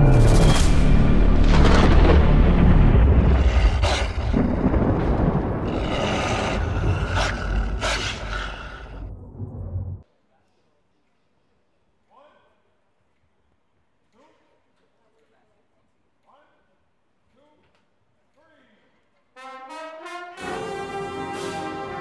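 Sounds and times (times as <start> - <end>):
deep bass boom: 9.0 - 10.0.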